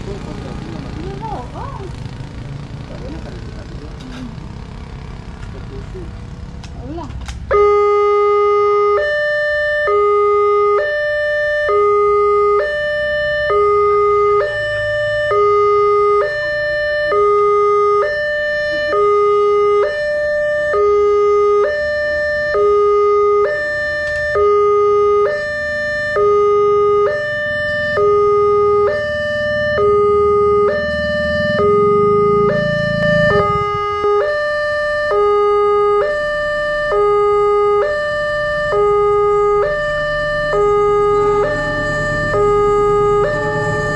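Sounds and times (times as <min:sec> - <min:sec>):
level crossing two-tone alarm: 0:07.5 - 0:43.9.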